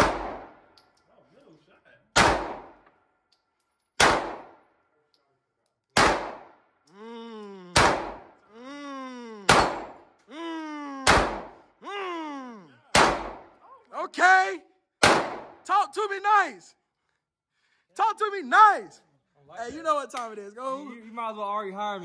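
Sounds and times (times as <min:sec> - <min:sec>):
gunshots: 0:00.0 - 0:00.7, 0:02.1 - 0:02.8, 0:04.0 - 0:04.6, 0:06.0 - 0:06.6, 0:07.7 - 0:08.4, 0:09.5 - 0:10.1, 0:11.0 - 0:11.7, 0:12.9 - 0:13.6, 0:15.0 - 0:15.6.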